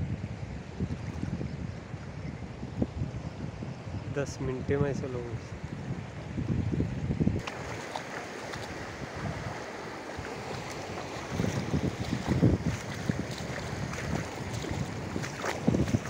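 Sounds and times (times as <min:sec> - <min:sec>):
wind buffeting microphone: 0:00.0 - 0:16.0
floodwater rushing: 0:07.4 - 0:16.0.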